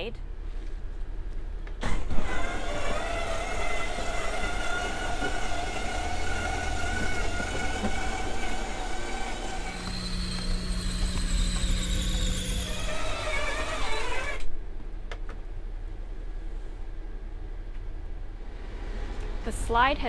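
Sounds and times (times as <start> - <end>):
electric motor whining: 1.9 - 14.5.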